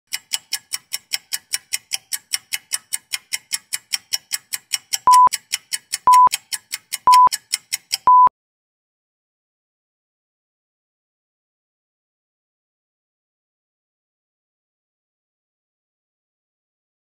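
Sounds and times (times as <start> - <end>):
fast clock-like ticking: 0.1 - 8.3
short loud beeps: 5.1 - 5.3, 6.1 - 6.3, 7.1 - 7.3, 8.1 - 8.3.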